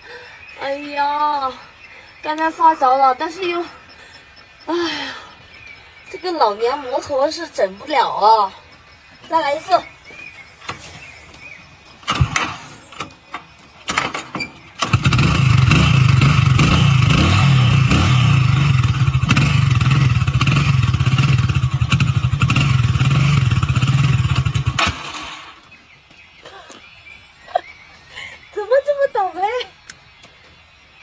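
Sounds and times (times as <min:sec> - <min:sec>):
motorcycle engine running: 0:14.8 - 0:25.8.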